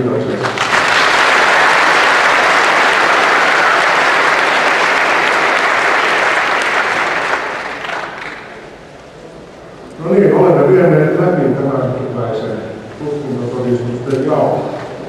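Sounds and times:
audience applauding: 0.3s - 8.8s.

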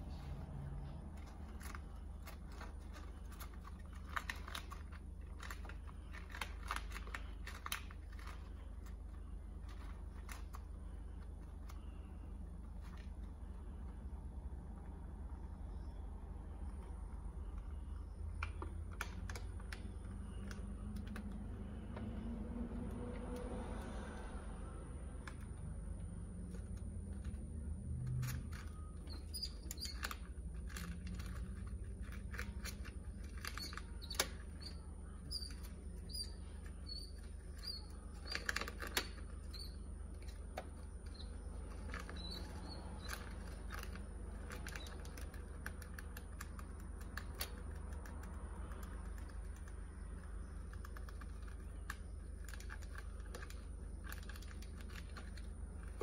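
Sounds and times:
steady low hum: 0.0s - 56.0s
gravel clicks and scrabbling: 25.2s - 56.0s.

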